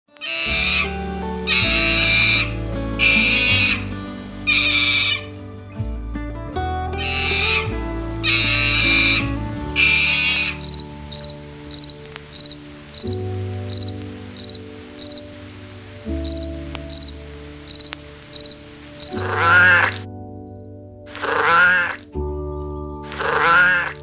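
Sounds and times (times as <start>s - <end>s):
soft background music: 0.1s - 24.0s
animal call rising and falling: 0.2s - 5.3s, 7.0s - 10.8s
cricket chirping: 10.1s - 15.4s, 16.1s - 19.9s.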